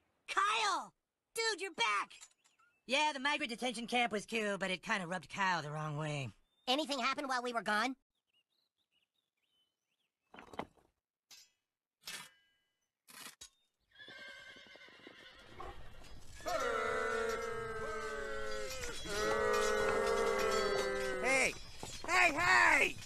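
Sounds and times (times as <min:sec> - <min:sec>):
horses whinnying: 0:13.9 - 0:23.0.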